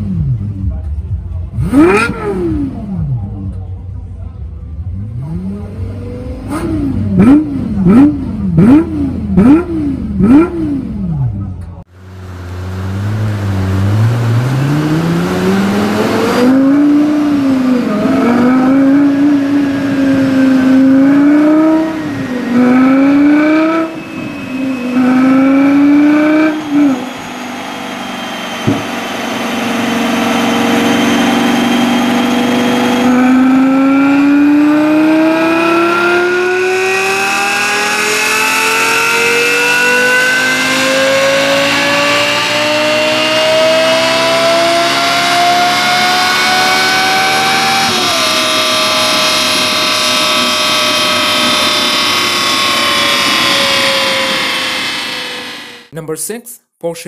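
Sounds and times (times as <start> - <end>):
sports car engine revving: 0.0 - 55.9
car engine idling: 11.1 - 33.2.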